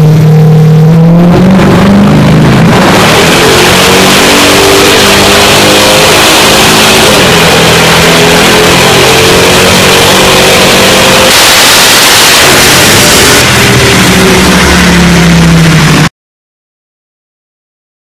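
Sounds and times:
car engine revving hard: 0.0 - 16.1.

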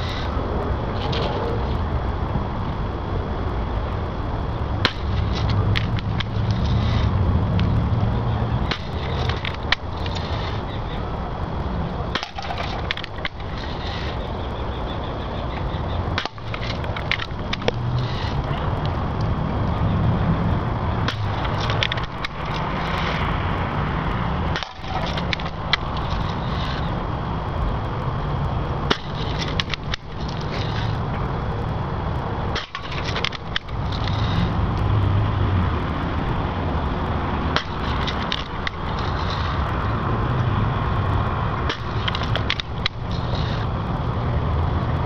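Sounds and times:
low rumble: 0.0 - 45.0
wind on microphone: 0.0 - 45.0.

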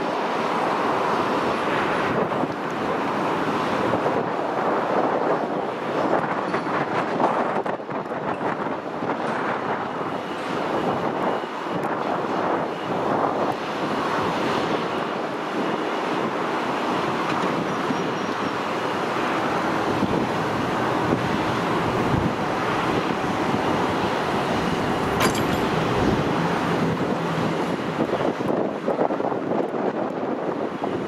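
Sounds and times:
wind buffeting microphone: 0.0 - 31.0
distant jet roar: 8.8 - 29.5.

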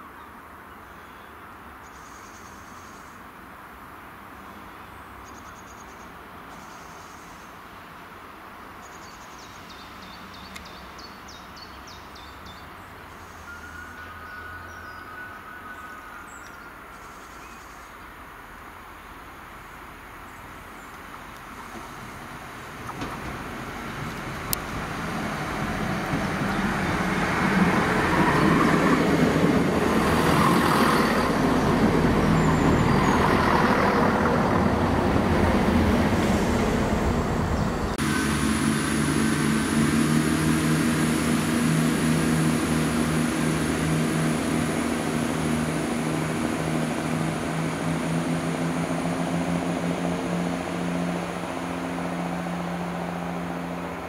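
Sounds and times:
diesel engines humming: 20.4 - 54.0
train wheel noise: 22.7 - 51.8
high whine: 34.2 - 54.0.

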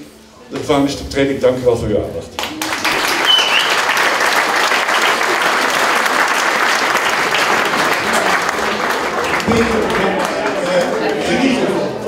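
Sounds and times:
audience applauding: 2.4 - 11.8.

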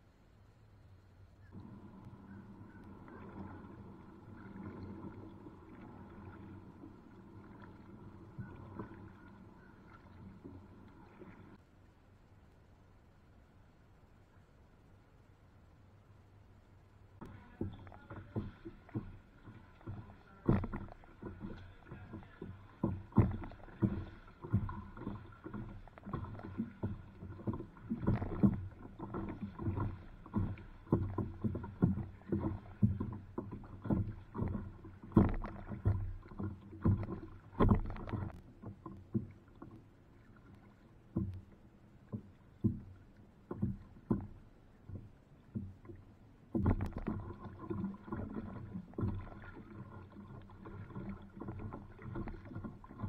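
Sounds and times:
water slapping kayak hull: 1.4 - 11.7, 17.0 - 53.0.

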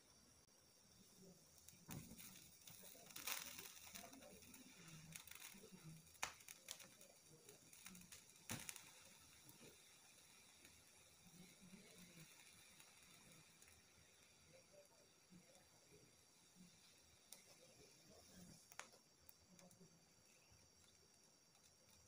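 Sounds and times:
soft steady gas flame hiss: 0.0 - 22.0
vegetables crackling over flame: 0.0 - 22.0.

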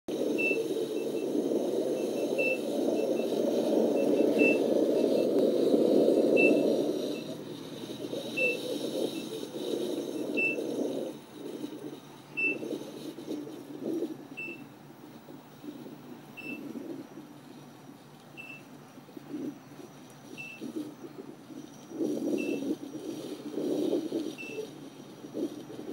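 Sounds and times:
wind and riding noise: 0.1 - 25.9
short high beeps: 12.4 - 12.6, 16.4 - 16.6, 18.4 - 18.7.

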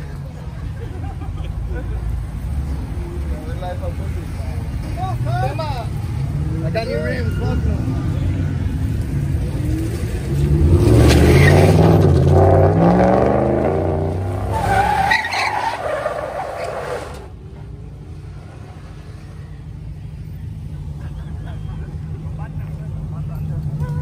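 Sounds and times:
tyres squealing on asphalt: 2.7 - 24.0
truck engine revving: 5.2 - 24.0.

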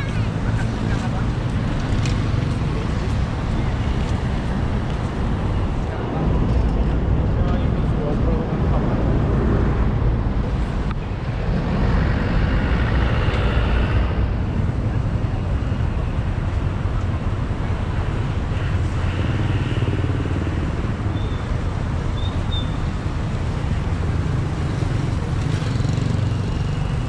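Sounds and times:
road traffic: 0.0 - 27.0.

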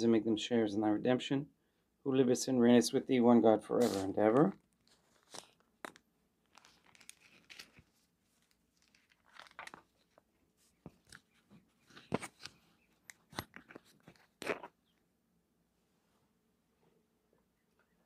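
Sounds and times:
rustling and crinkling: 3.8 - 14.8.

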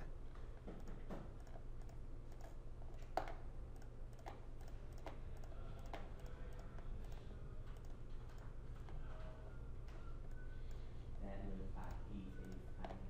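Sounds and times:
computer mouse clicking: 0.0 - 9.0, 11.8 - 13.0
low steady hum: 0.0 - 13.0.

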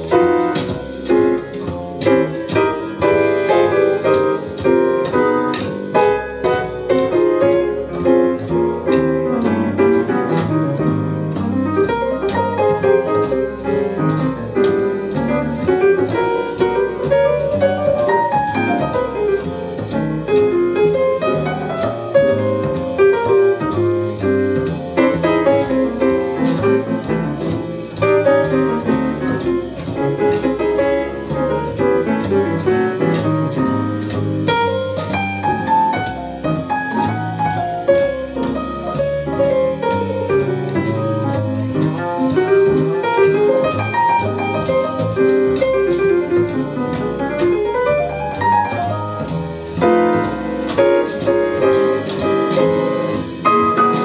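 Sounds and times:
drums with steady cymbal beat: 0.0 - 8.8
jazz piano: 0.0 - 54.0.

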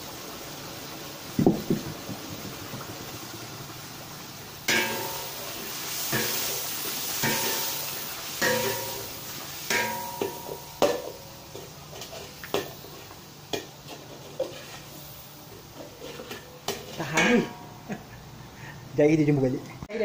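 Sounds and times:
sauce bubbling and sizzling: 0.0 - 18.7
metal spatula knocking on wok: 8.4 - 9.1, 9.7 - 11.2, 17.1 - 17.8.

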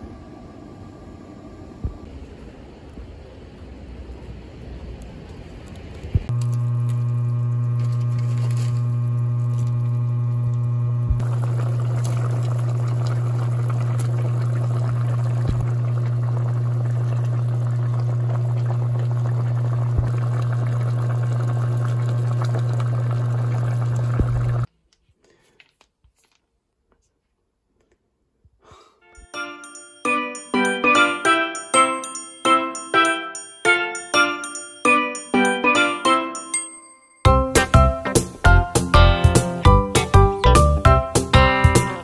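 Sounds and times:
steady low hum: 0.0 - 24.7
stew simmering and bubbling: 0.0 - 24.7
chiming bell-like tune: 29.1 - 37.4.

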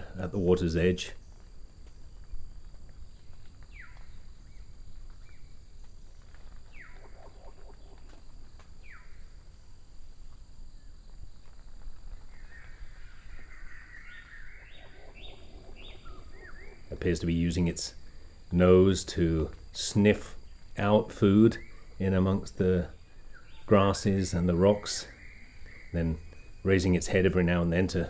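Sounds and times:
bird harsh chattering calls: 12.4 - 17.0
bird downward-sliding calls: 13.4 - 17.0.

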